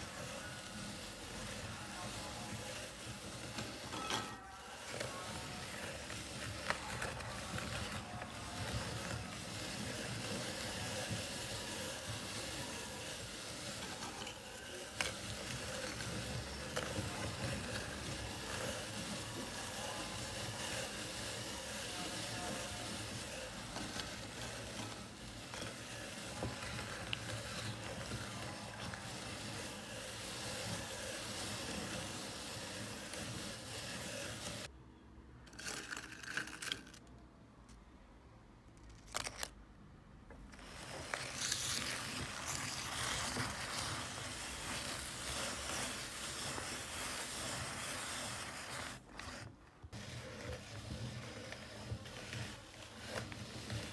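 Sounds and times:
meat grinder crunching biscuits: 0:00.0 - 0:34.7, 0:35.5 - 0:37.0, 0:40.4 - 0:53.9.

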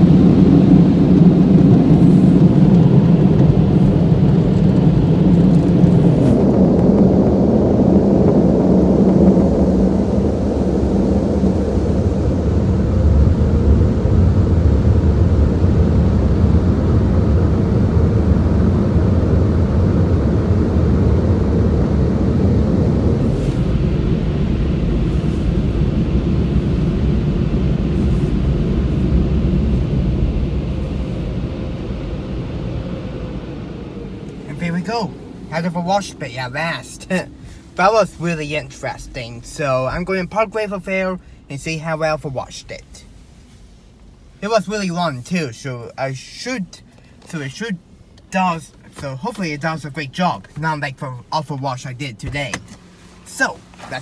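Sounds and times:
car wash air dryers blowing: 0:00.0 - 0:54.0
low rumble of car moving: 0:00.0 - 0:54.0.

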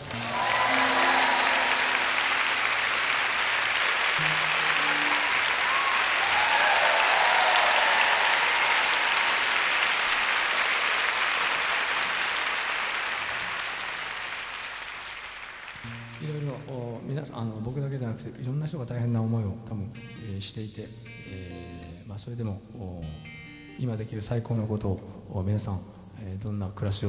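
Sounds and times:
audience applauding: 0:00.0 - 0:16.8.

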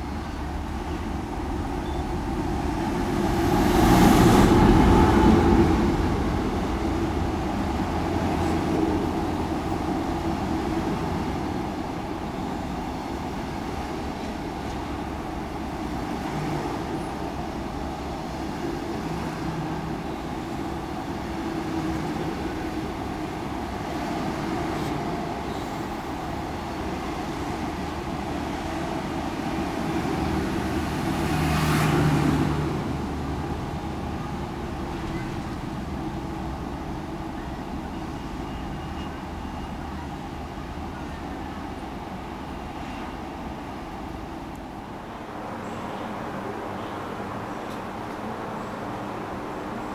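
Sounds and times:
train wheels rumbling on rails: 0:00.0 - 0:46.7.

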